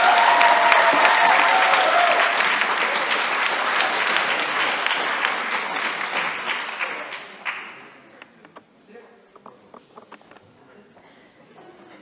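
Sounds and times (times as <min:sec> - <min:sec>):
crowd applauding: 0:00.0 - 0:08.4.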